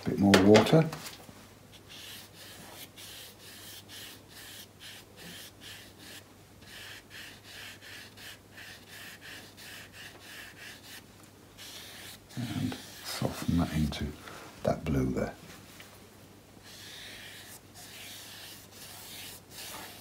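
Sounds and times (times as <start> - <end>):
brush swishing on wet paper: 1.7 - 11.0, 11.6 - 14.0, 16.6 - 20.0.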